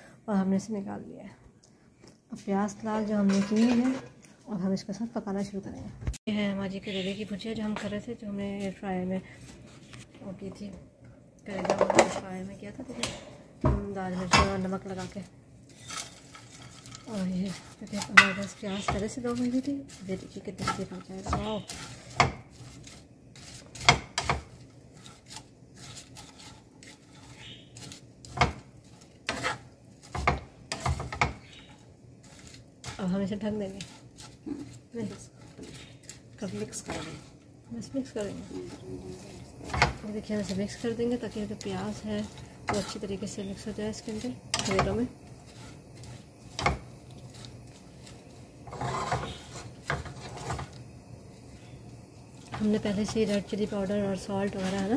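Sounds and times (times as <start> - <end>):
spatula scraping frying pan: 13.0 - 54.9
spatula knocking against pan: 18.0 - 19.2, 20.6 - 22.5, 23.8 - 24.5, 29.3 - 31.5.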